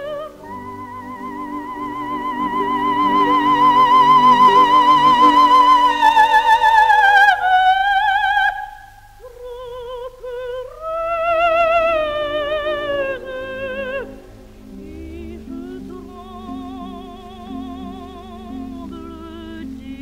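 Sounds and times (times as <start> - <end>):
orchestra playing: 0.0 - 7.0, 11.8 - 20.0
soprano singing: 0.0 - 20.0.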